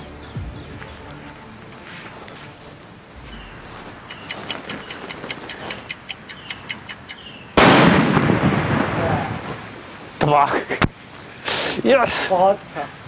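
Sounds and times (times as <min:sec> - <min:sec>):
fire rushing: 0:03.0 - 0:04.6, 0:07.6 - 0:10.2
clock-like ticking: 0:03.2 - 0:07.2
firecracker bang: 0:07.6 - 0:09.5.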